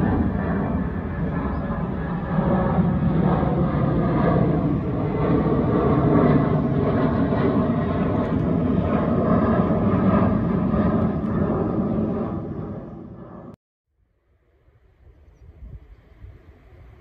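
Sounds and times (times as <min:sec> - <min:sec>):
jet engines roaring: 0:00.0 - 0:13.6.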